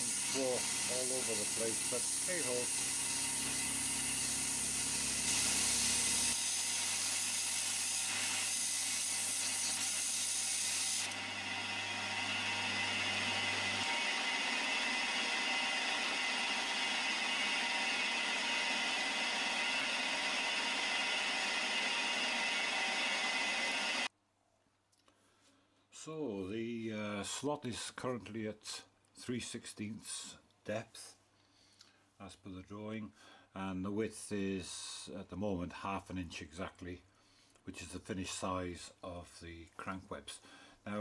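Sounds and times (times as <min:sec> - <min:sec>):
milling machine cutting: 0:00.0 - 0:24.1.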